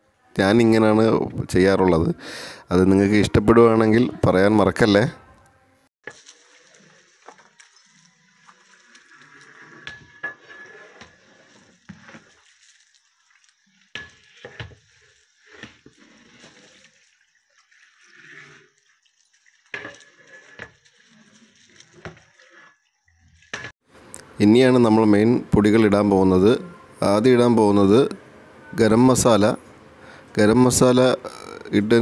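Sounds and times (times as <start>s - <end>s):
meat churning wetly: 6.0s - 23.6s
ladle scraping metal pot: 6.0s - 23.7s.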